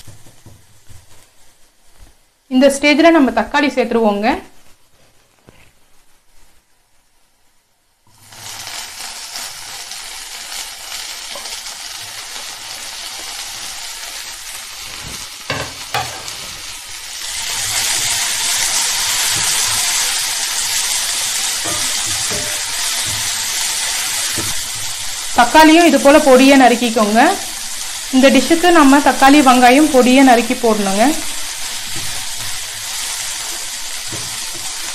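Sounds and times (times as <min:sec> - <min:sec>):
tomatoes sizzling in hot oil: 0:00.0 - 0:34.9
spatula stirring pan: 0:17.3 - 0:26.5, 0:27.6 - 0:34.9.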